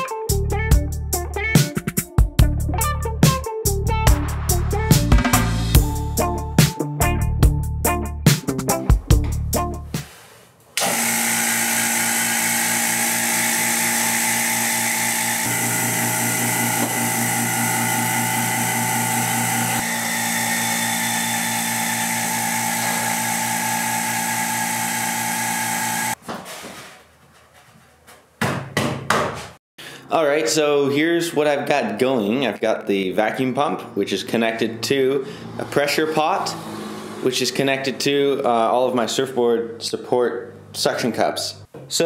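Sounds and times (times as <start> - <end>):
electric vacuum pump running: 10.8 - 26.2.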